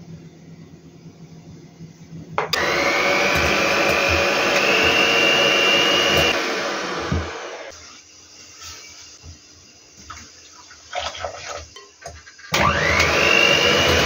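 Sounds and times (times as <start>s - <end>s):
electric hand mixer whisking: 2.5s - 7.7s, 12.5s - 14.0s.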